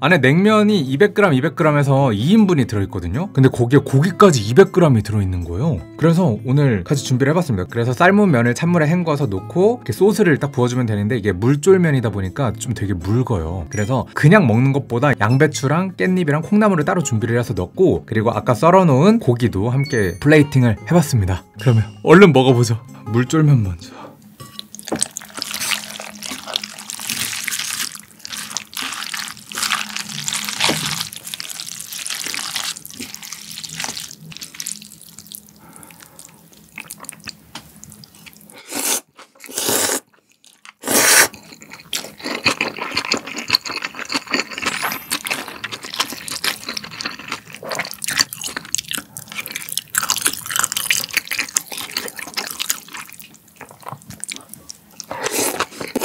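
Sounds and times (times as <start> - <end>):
wet chewing: 24.5 - 56.0
chopsticks mixing wet noodles: 24.6 - 38.5, 41.4 - 56.0
noodle slurps: 40.8 - 41.4.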